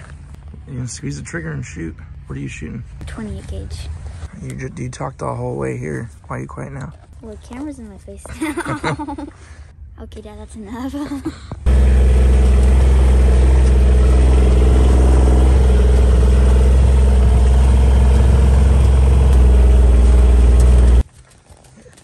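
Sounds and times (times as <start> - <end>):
vehicle engine running: 11.7 - 21.0.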